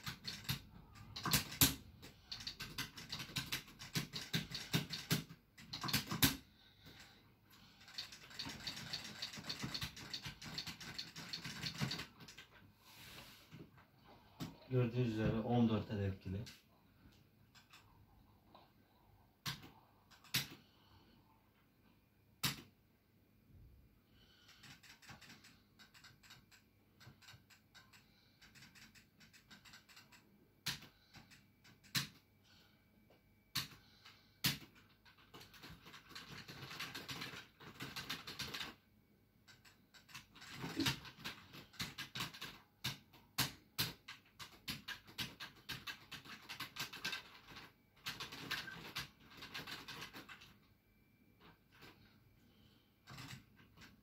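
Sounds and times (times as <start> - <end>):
arcade buttons and joystick clicking: 0.0 - 7.0.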